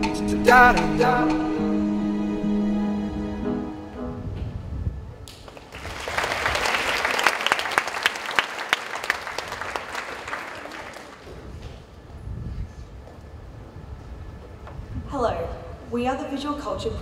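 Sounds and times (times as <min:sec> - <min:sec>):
audience applauding: 0:05.3 - 0:11.4.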